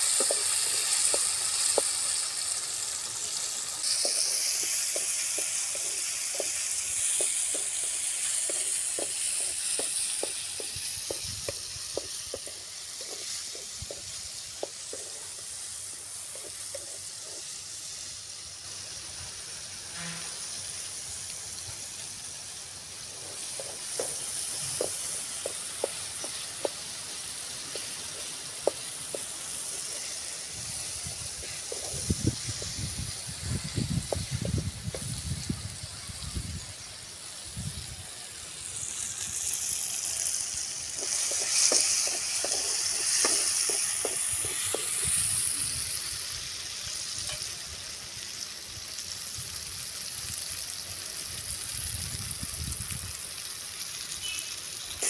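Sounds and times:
food sizzling in oil: 0:00.0 - 0:55.0.

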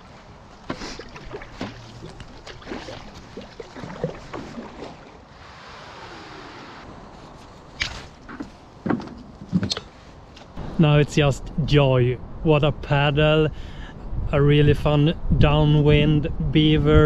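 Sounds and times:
paddle strokes and splashes: 0:00.0 - 0:06.4.

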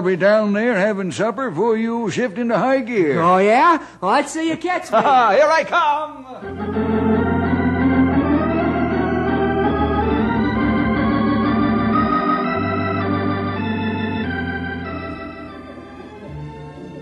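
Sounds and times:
organ chords: 0:06.4 - 0:17.0.

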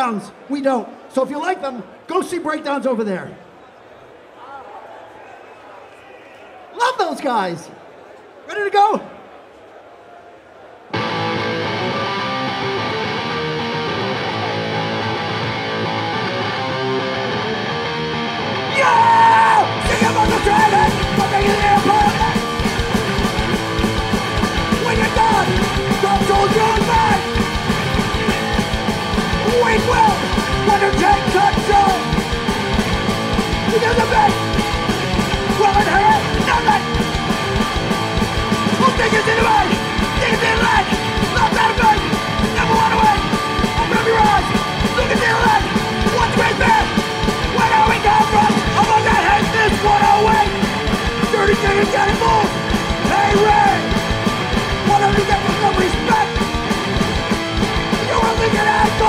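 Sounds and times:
punk band playing live: 0:11.0 - 0:59.0
shouted vocals: 0:18.5 - 0:56.5, 0:57.6 - 0:59.0.

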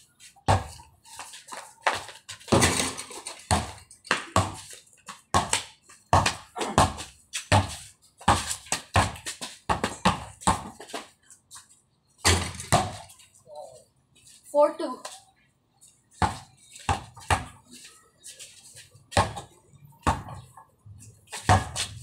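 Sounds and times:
basketball bouncing on concrete: 0:00.4 - 0:00.9, 0:01.5 - 0:11.1, 0:12.2 - 0:13.1, 0:16.2 - 0:17.6, 0:19.1 - 0:20.7, 0:21.3 - 0:22.0
ball striking hoop: 0:02.5 - 0:04.6, 0:21.5 - 0:21.8.

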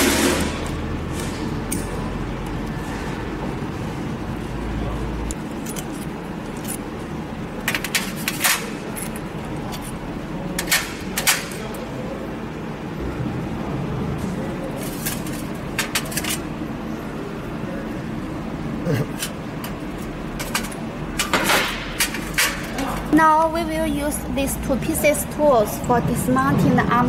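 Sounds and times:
steady background hum: 0:00.0 - 0:27.0
metal parts clinking on steel tray: 0:14.8 - 0:16.4.

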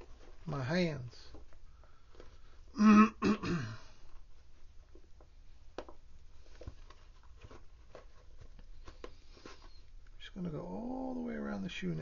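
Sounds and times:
man clearing throat: 0:02.8 - 0:03.9.

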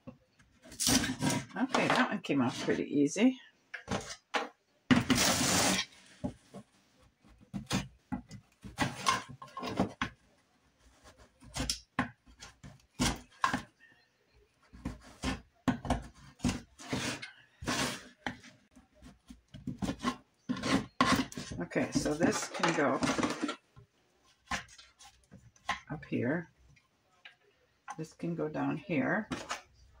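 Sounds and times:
hand tool scraping wood: 0:16.3 - 0:18.4.

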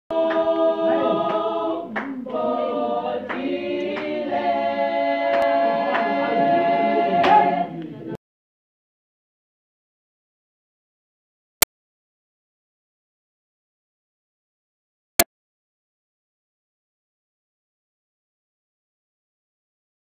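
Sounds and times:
choir singing a cappella: 0:00.1 - 0:08.0.

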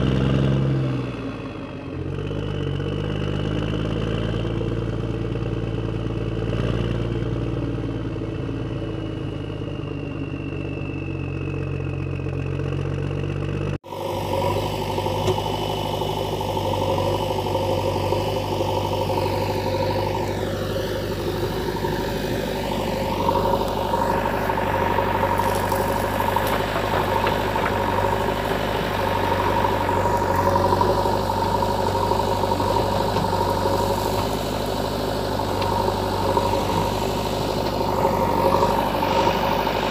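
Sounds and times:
different engine-like sound: 0:00.0 - 0:39.9
engine-like running sound: 0:00.0 - 0:39.9.

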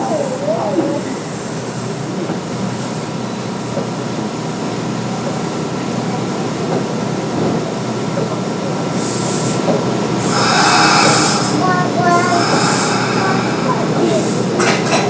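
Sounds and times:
train interior rumble and hum: 0:00.0 - 0:15.0
faint steady whine: 0:10.3 - 0:14.6.

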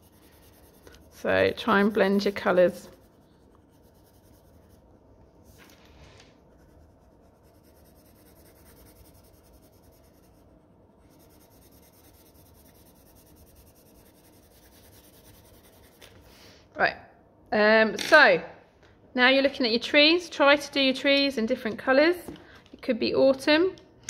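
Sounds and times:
pencil scratching on paper: 0:00.0 - 0:05.6, 0:06.4 - 0:16.0.

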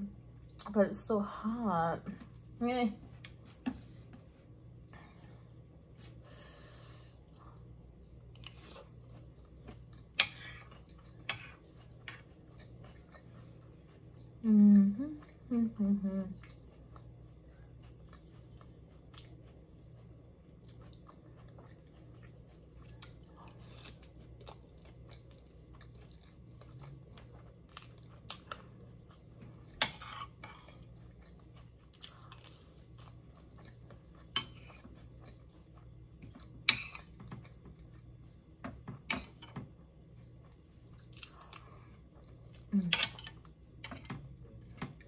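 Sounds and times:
faint low hum: 0:00.0 - 0:45.0
chewing and eating: 0:07.0 - 0:45.0
cutlery scraping and clinking on plates: 0:29.8 - 0:30.8, 0:42.9 - 0:44.2.

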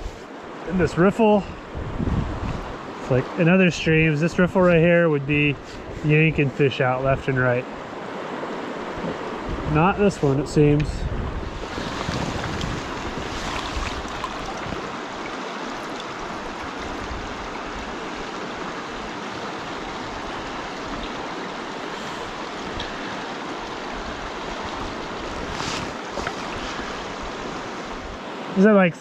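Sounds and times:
river rushing over rocks: 0:11.5 - 0:28.8.

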